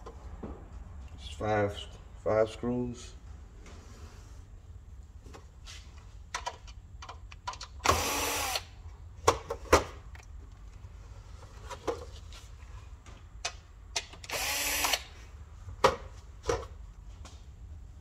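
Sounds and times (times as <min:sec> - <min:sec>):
cordless drill spinning screws: 0:07.9 - 0:08.7, 0:14.3 - 0:15.1.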